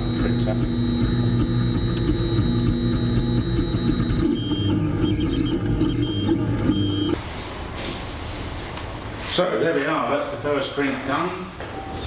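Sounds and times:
stepper motors whining: 0.0s - 7.2s.

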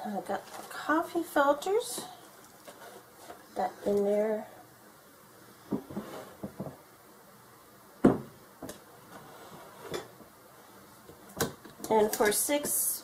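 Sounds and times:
kitchen items knocking on countertop: 8.0s - 8.8s.

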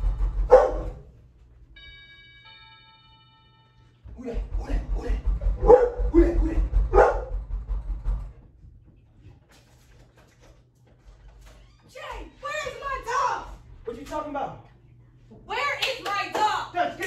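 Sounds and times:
dog barking: 0.4s - 1.0s, 5.6s - 7.4s
low rhythmic thumping: 4.1s - 9.0s.

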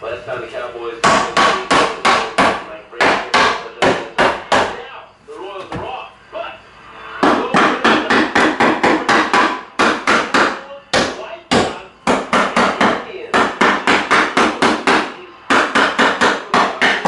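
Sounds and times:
hammer striking wood: 1.0s - 4.8s, 7.2s - 17.0s.

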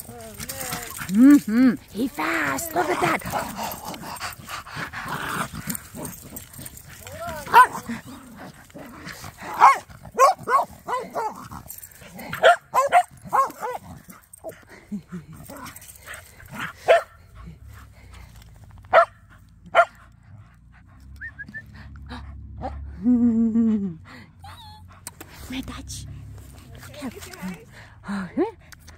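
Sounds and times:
dog barking: 7.4s - 7.9s, 9.5s - 11.4s, 12.3s - 13.8s, 16.8s - 17.2s, 18.9s - 20.0s.

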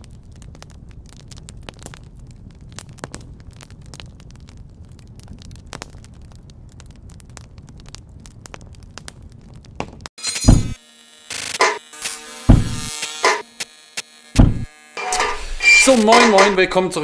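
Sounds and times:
campfire crackling: 0.0s - 10.1s, 14.3s - 17.0s.

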